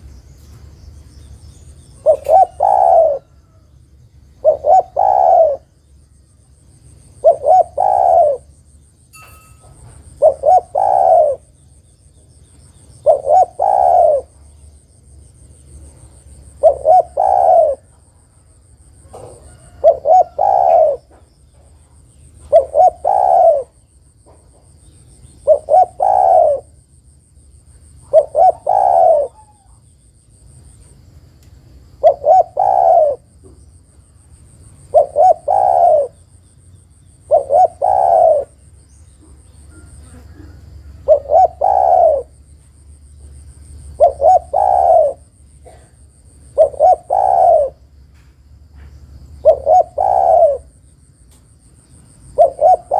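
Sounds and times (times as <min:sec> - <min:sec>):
dove cooing: 0:02.0 - 0:03.6, 0:04.4 - 0:05.8, 0:07.2 - 0:08.6, 0:10.0 - 0:11.6, 0:13.0 - 0:14.4, 0:16.4 - 0:18.0, 0:19.0 - 0:21.3, 0:22.4 - 0:23.9, 0:25.4 - 0:26.8, 0:28.0 - 0:29.8, 0:32.0 - 0:33.4, 0:34.8 - 0:36.2, 0:37.2 - 0:38.6, 0:39.2 - 0:42.4, 0:43.8 - 0:47.9, 0:49.4 - 0:50.8, 0:52.3 - 0:52.9.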